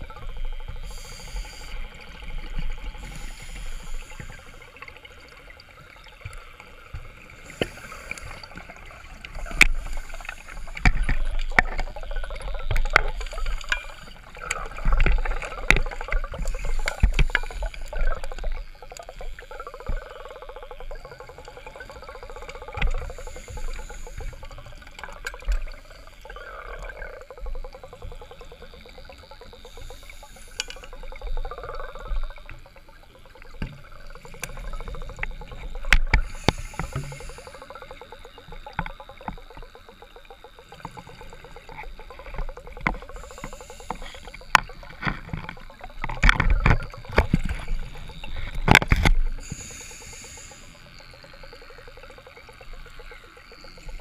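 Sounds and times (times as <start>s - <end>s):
exhaled bubbles: 0.0s - 54.0s
diver breathing through a regulator: 0.7s - 4.9s, 7.3s - 11.2s, 12.9s - 18.4s, 21.9s - 26.3s, 29.6s - 32.2s, 34.2s - 38.2s, 42.9s - 45.3s, 47.2s - 52.3s.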